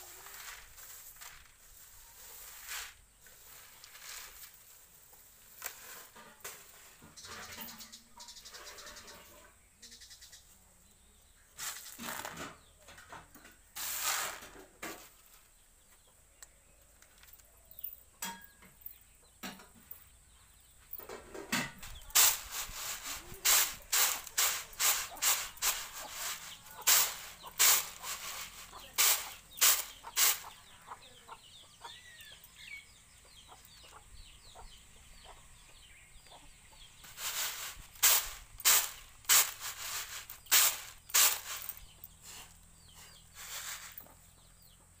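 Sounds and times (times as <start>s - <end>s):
kernels rattling in winnowing tray: 0.0s - 7.7s, 13.8s - 14.6s, 21.6s - 30.5s, 37.0s - 42.6s, 43.2s - 44.0s.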